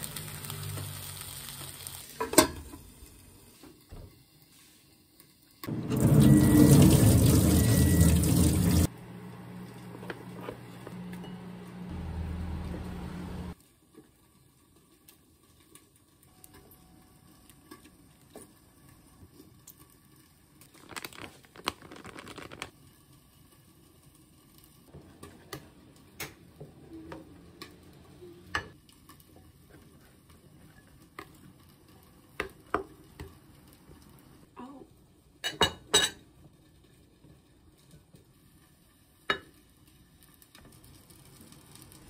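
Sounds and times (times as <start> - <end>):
plastic bag rustling: 20.7 - 22.8.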